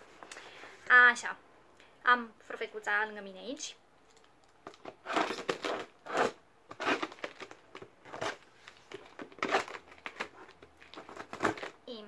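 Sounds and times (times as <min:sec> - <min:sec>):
wrapping and tape crinkling: 0:04.0 - 0:12.0
scissors cutting packaging: 0:04.7 - 0:11.8.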